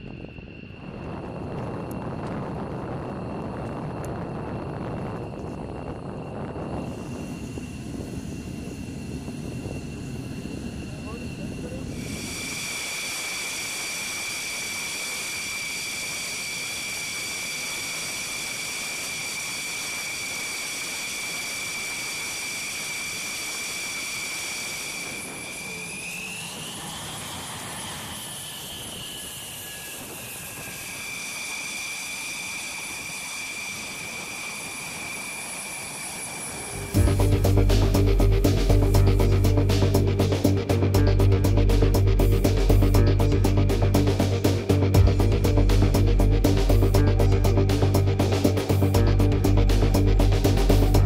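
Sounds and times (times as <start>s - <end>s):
jet engine whine: 0.0s - 51.0s
rushing hiss: 11.9s - 25.7s.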